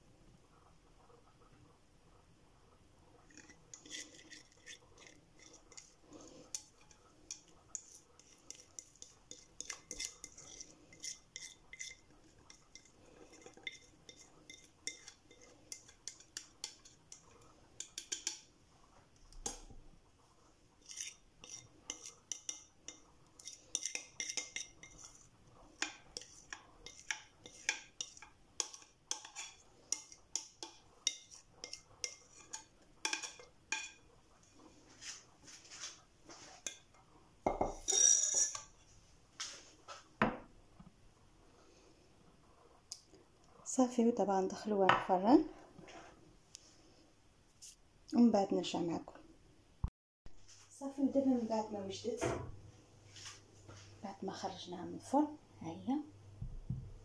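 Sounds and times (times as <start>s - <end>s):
spoon scraping bowl: 3.2s - 19.7s, 20.5s - 39.6s
spoon clinking on glass: 37.4s - 38.7s.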